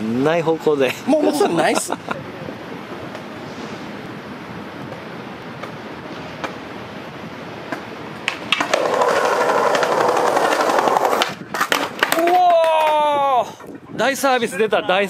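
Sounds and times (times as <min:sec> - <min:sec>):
skateboard wheels rolling on asphalt: 0:02.7 - 0:14.0.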